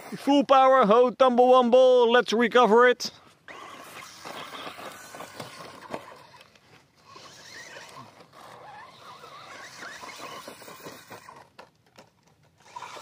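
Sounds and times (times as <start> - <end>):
electric motor whining: 3.5 - 11.6, 12.6 - 13.0.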